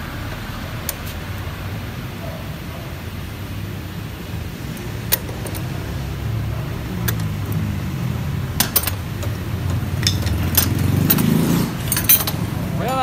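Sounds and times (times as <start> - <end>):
metallic clinks of hand tools: 10.0 - 13.0.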